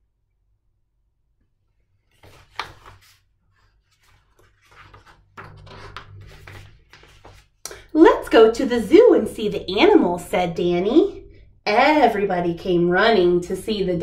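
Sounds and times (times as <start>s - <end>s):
book pages turning: 2.0s - 7.6s.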